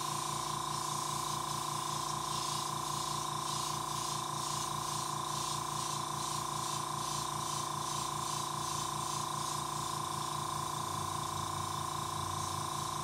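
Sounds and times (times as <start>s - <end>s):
airbrush hissing: 0.0s - 11.1s.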